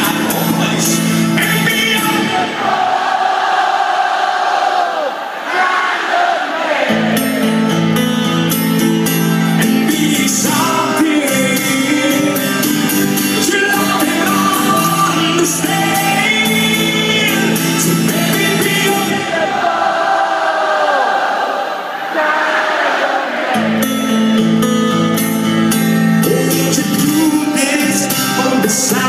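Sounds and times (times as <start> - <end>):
guitar chords: 0.0 - 2.9, 6.8 - 20.2, 23.2 - 29.0
person singing: 9.5 - 21.2, 22.1 - 23.8, 26.2 - 29.0.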